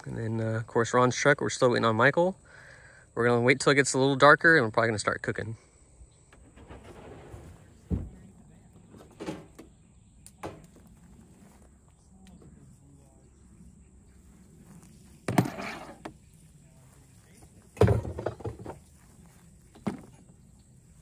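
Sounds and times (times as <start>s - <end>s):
camp gear clattering: 6.3s - 9.8s, 10.4s - 11.7s, 14.8s - 16.2s, 17.4s - 20.5s.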